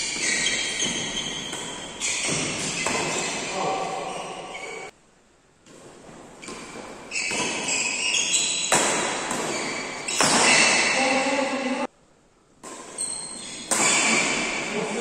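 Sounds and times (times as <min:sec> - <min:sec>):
rackets hitting shuttlecock: 0:00.0 - 0:04.0, 0:05.7 - 0:11.2, 0:12.6 - 0:15.0.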